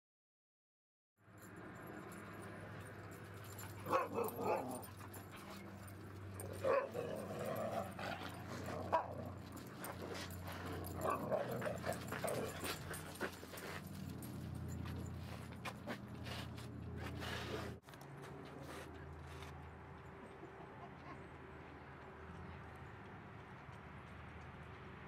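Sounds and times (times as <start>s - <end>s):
dogs barking and yipping: 2.4s - 17.8s.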